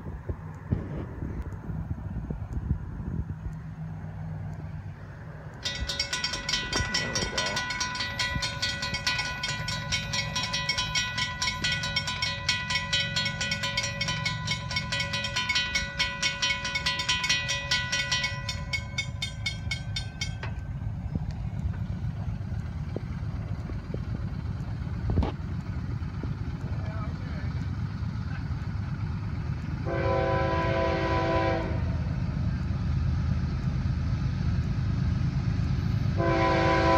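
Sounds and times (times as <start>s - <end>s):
low rumble: 0.0s - 30.6s
railroad crossing bell dinging: 5.5s - 25.0s.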